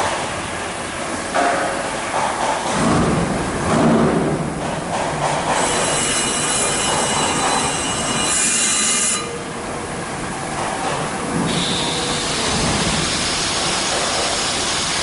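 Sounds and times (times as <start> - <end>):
sharp high screech: 5.6 - 9.4
brake lathe cutting metal squealing: 5.6 - 9.5.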